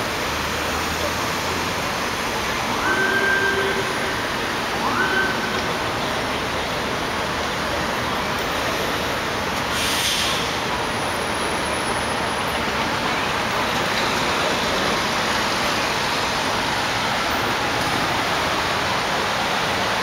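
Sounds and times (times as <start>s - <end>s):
traffic tyres hissing on wet road: 0.0s - 20.0s
short sharper hiss: 9.7s - 10.6s.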